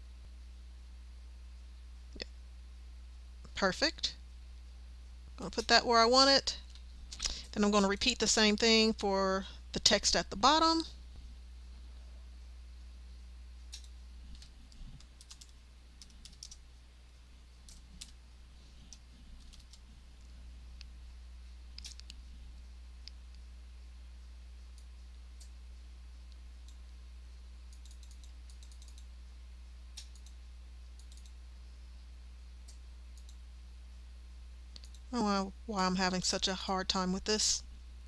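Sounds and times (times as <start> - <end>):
low steady hum: 0.0 - 38.0
keyboard and mouse clicking: 13.7 - 16.6, 18.9 - 19.8, 21.8 - 22.2, 27.7 - 29.1, 30.0 - 30.4, 31.0 - 31.4, 32.7 - 33.4, 34.7 - 35.0.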